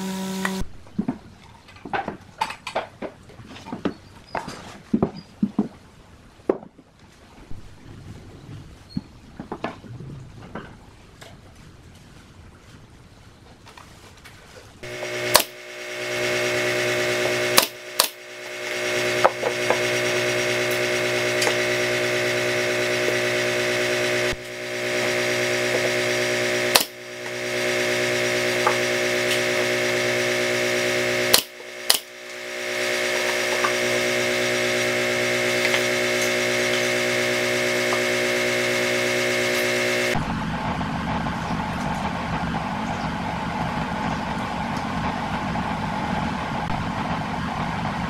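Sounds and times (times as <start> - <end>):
machine hum: 0.0 - 1.1, 14.8 - 48.0
nail gun shots: 15.3 - 15.6, 17.6 - 18.2, 26.7 - 27.0, 31.3 - 32.1.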